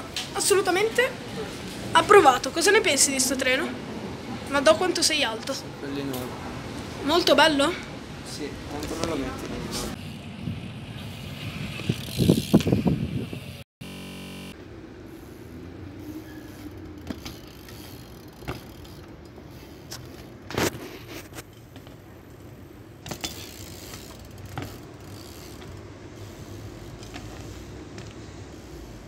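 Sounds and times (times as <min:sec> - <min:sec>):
bike freewheel hub ticking: 0:16.2 - 0:20.3, 0:23.0 - 0:29.0
bike landing knocks: 0:17.0 - 0:17.8, 0:18.4 - 0:18.9, 0:23.0 - 0:25.8, 0:27.0 - 0:28.2.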